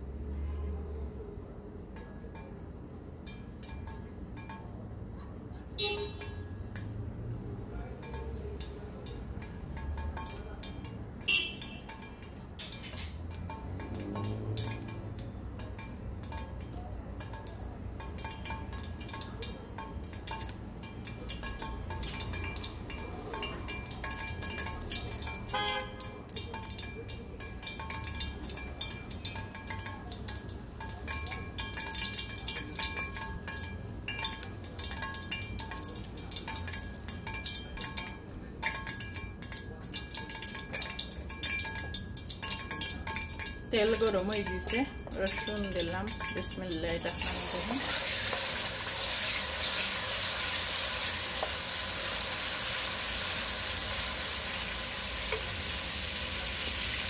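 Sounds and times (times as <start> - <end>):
oil crackling in pot: 0.0 - 57.0.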